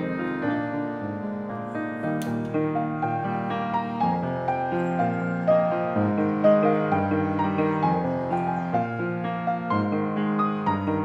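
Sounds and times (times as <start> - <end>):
slow gentle piano piece: 0.0 - 11.0.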